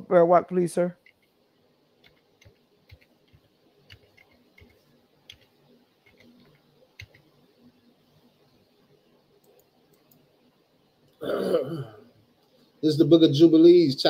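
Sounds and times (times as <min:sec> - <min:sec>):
computer mouse clicks: 0:01.0 - 0:01.4, 0:02.0 - 0:07.3, 0:09.4 - 0:10.3.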